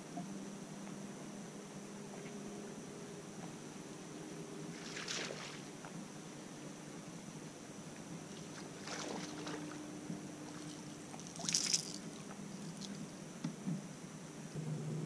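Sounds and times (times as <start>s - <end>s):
fish splashing out of water: 4.8s - 5.7s, 8.5s - 9.7s, 10.5s - 13.0s.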